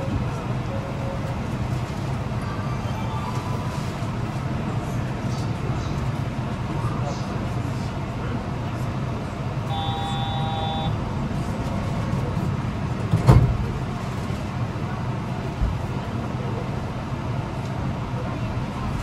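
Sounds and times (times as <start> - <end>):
train cabin rumble and hum: 0.0 - 19.0
electronic multi-pitch tone: 9.7 - 11.0.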